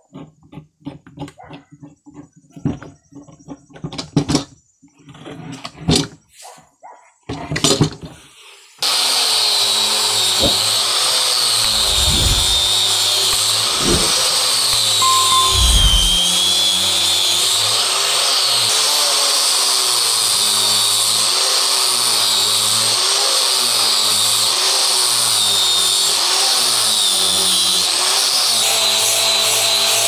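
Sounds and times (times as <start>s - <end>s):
angle grinder sanding wood: 8.8s - 14.8s.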